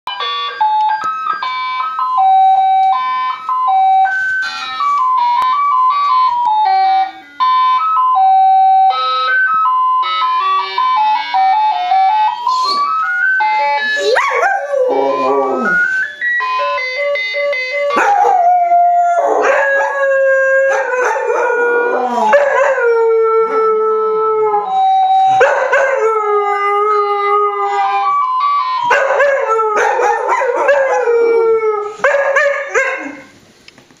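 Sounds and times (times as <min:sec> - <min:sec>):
phone ringtone melody: 0:00.1 - 0:23.3, 0:23.9 - 0:31.5
dogs howling: 0:14.0 - 0:15.8, 0:18.0 - 0:24.7, 0:28.9 - 0:33.3.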